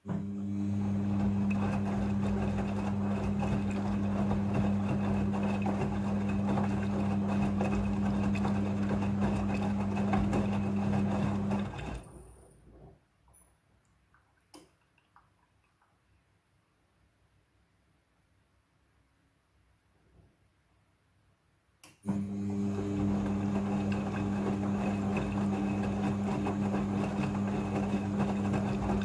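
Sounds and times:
washing machine motor hum: 0.0 - 13.0, 22.0 - 29.0.

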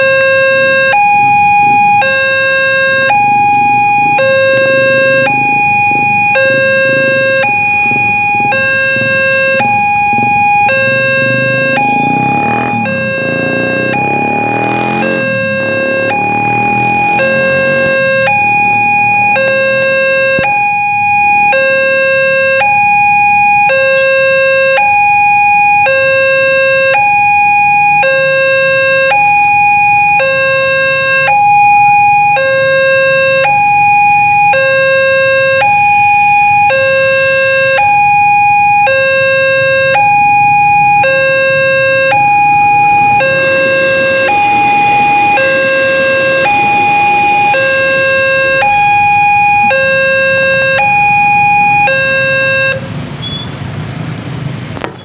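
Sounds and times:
two-tone level crossing alarm: 0.0 - 52.9
train passing over crossing: 1.9 - 18.6, 41.0 - 50.8.

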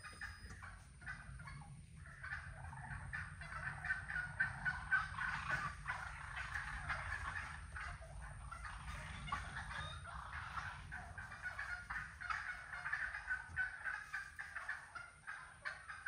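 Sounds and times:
wild turkeys calling: 0.0 - 16.0.

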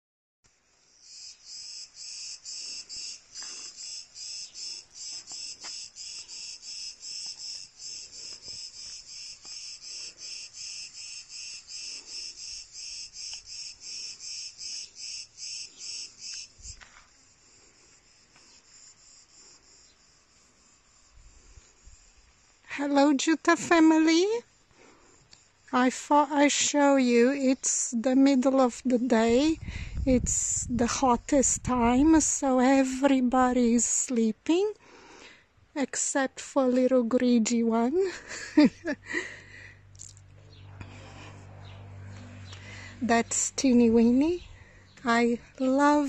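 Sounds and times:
faint high insect hiss: 0.5 - 28.4
cicadas chirring: 0.5 - 31.4, 37.8 - 46.0.

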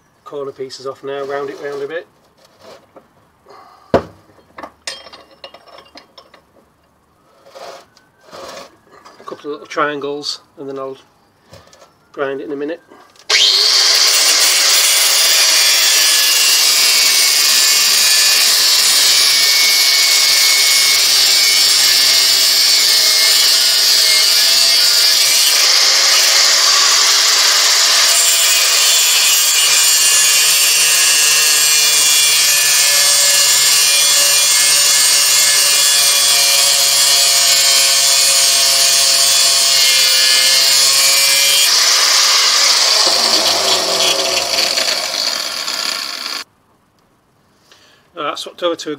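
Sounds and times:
angle grinder cutting steel: 13.3 - 46.5.

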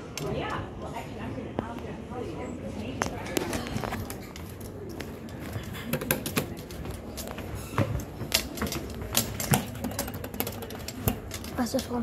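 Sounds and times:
footsteps on tiled floor: 2.8 - 9.8.

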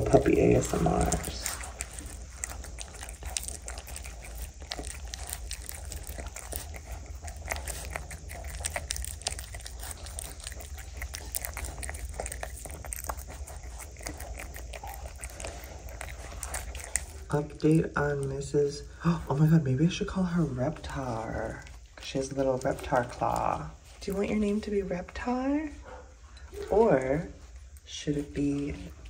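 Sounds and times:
puppies chewing and licking: 0.0 - 29.0.

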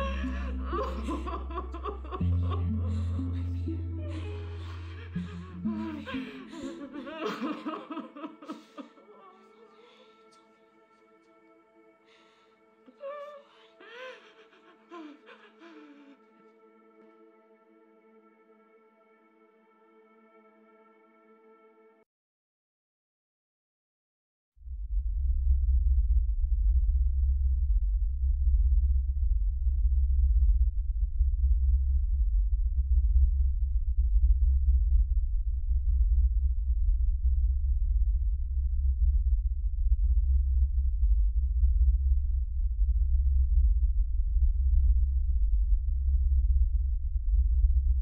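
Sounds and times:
deep low drone: 0.0 - 8.3, 24.6 - 48.0.

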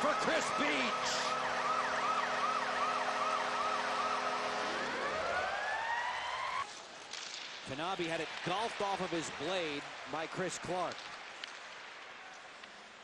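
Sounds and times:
rising siren tone: 0.0 - 6.7
yelping siren: 0.0 - 6.7.

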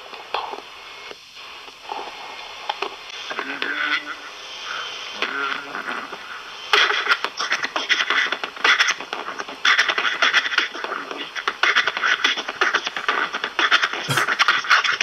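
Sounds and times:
beatboxing through small speaker: 9.1 - 14.5.

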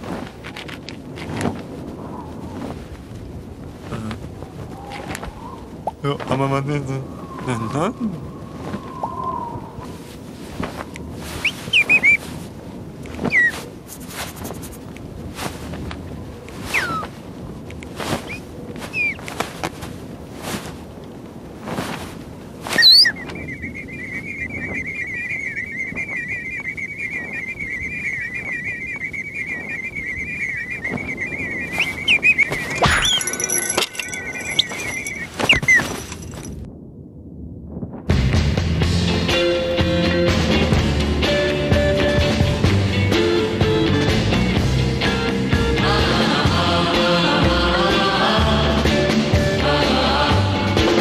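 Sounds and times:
squeaky whistle glide: 11.4 - 12.2, 13.2 - 13.6, 18.2 - 19.2, 22.7 - 36.2
long wavering whistle: 22.8 - 33.4.

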